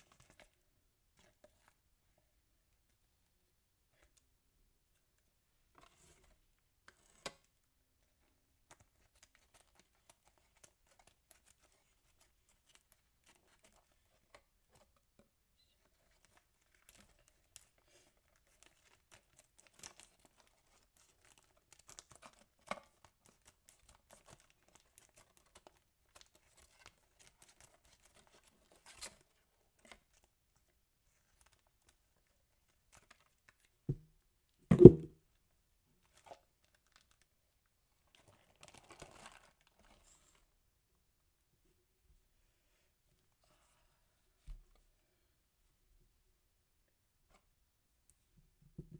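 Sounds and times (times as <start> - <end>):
plastic bag crinkling: 38.1 - 40.0.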